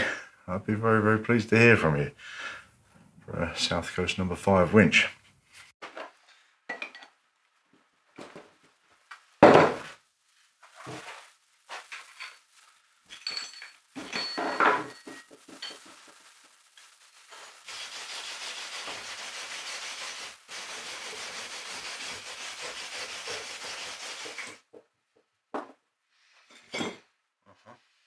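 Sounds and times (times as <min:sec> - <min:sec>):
metal clinks: 0:13.1 - 0:16.0.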